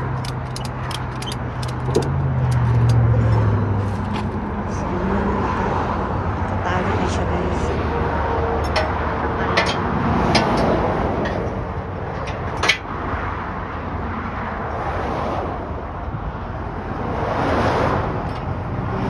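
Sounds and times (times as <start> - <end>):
sharp clicks or knocks: 0.0 - 4.3
highway traffic rushing: 0.0 - 19.0.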